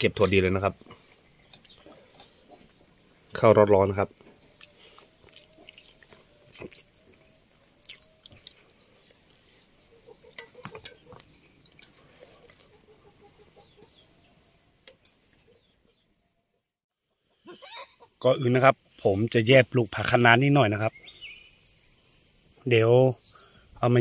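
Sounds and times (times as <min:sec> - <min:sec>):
high insect drone: 0:16.9 - 0:24.0.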